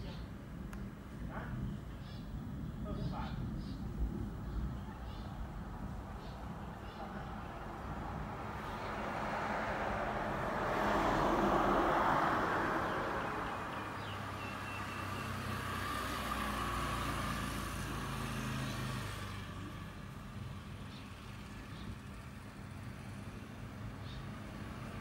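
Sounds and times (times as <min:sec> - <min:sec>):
low engine hum: 0:05.2 - 0:25.0
vehicle passing: 0:05.5 - 0:25.0.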